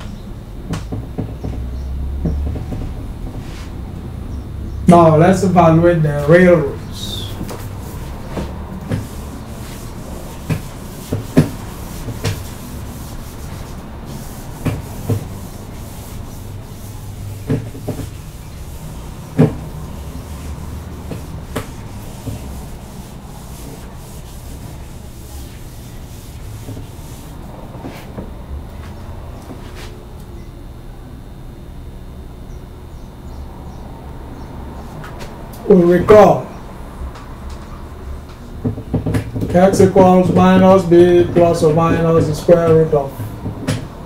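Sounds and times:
eraser rubbing on whiteboard: 7.0s - 28.1s
sharp knocks: 10.4s - 12.6s, 14.6s - 15.5s, 17.4s - 18.2s, 19.3s - 22.6s.

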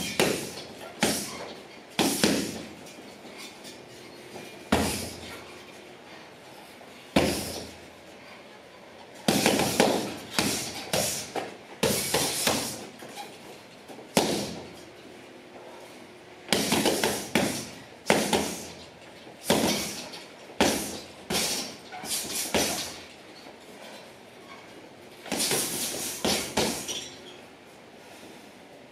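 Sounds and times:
punches thudding on heavy bag: 0.0s - 1.3s, 2.0s - 2.7s, 4.7s - 5.3s, 7.2s - 7.8s, 9.3s - 12.9s, 14.1s - 14.8s, 16.5s - 18.7s, 19.4s - 20.0s, 20.6s - 23.0s, 25.3s - 26.9s.

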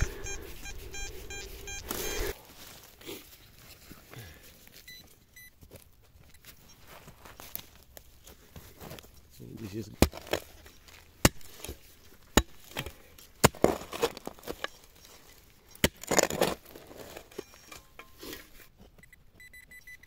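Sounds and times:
metal detector beeping: 0.0s - 2.4s, 4.8s - 5.6s, 14.4s - 18.2s, 19.0s - 20.0s
earth scraping and crumbling: 0.0s - 4.8s, 5.7s - 18.8s
digging tool striking soil: 9.5s - 18.6s.

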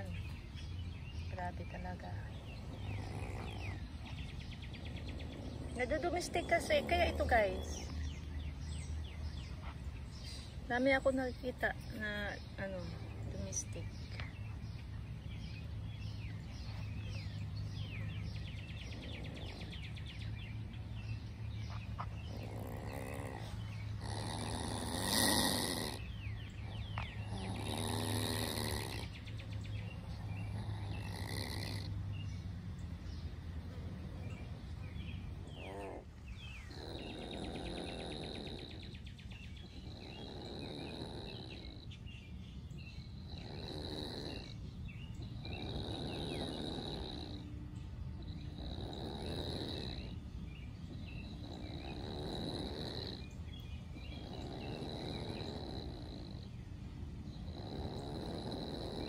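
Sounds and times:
opossum hissing and growling: 2.3s - 8.0s, 22.2s - 29.3s, 30.0s - 32.2s, 35.3s - 42.1s, 42.8s - 47.6s, 48.2s - 56.6s, 57.3s - 59.0s.

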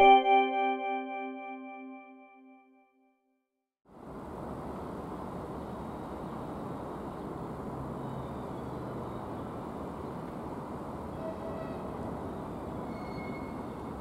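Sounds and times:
train rumbling: 10.6s - 14.0s.

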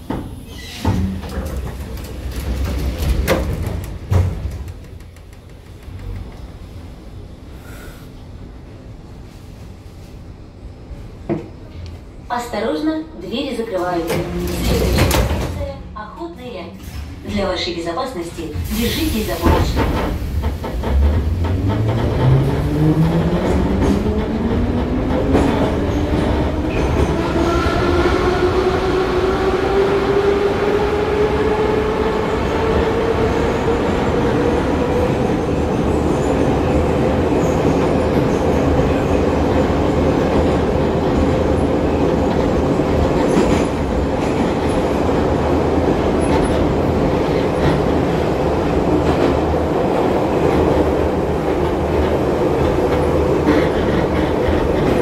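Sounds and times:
train wheels clattering on rails: 0.0s - 6.5s, 18.6s - 27.5s, 37.1s - 55.0s.

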